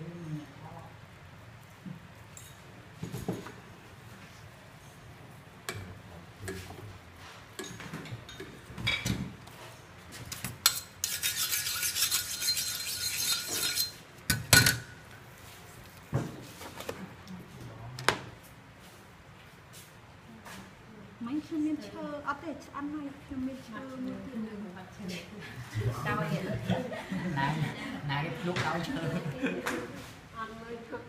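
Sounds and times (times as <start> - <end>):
utensils and dishes clinking: 10.3 - 14.9.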